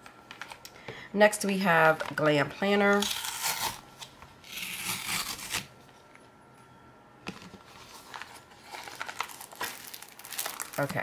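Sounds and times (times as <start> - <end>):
cardboard tear strip ripping: 3.0 - 3.8, 4.4 - 5.7
cardboard crackling and rustling: 7.3 - 11.0.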